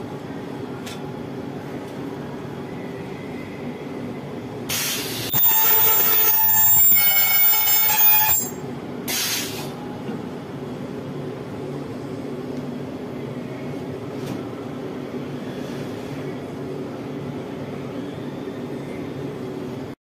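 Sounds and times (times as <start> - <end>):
ultrasonic welder screeching: 5.3 - 8.6
short hiss: 9.1 - 9.7.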